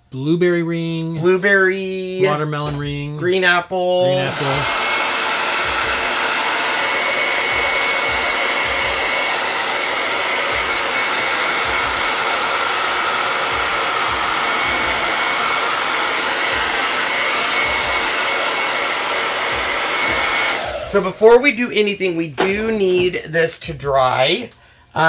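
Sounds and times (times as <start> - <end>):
hair dryer blowing: 4.0 - 21.8.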